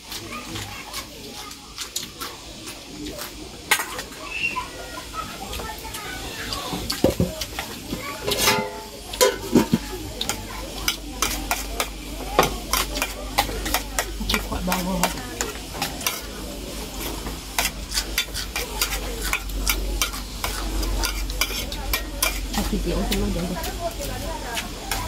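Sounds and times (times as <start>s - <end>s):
eating noises: 0.0s - 4.2s
spoons clinking on steel bowls: 8.3s - 16.4s, 17.5s - 25.0s.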